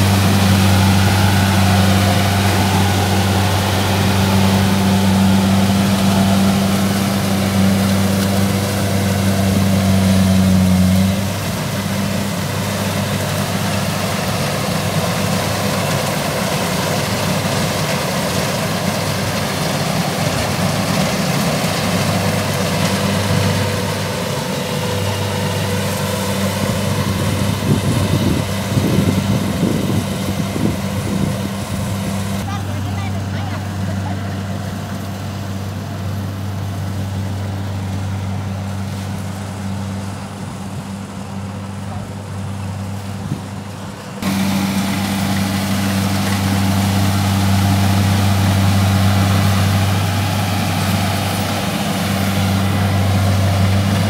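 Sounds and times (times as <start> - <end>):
combine harvester diesel engine: 0.0 - 54.0.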